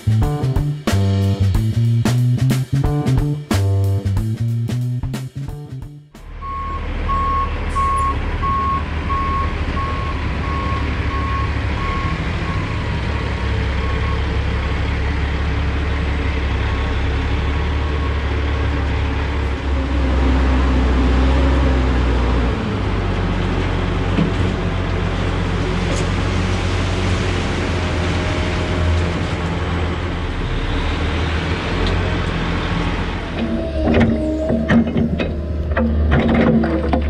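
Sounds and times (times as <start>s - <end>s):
diesel engine running: 5.5s - 37.0s
backup alarm beeping: 6.4s - 12.2s.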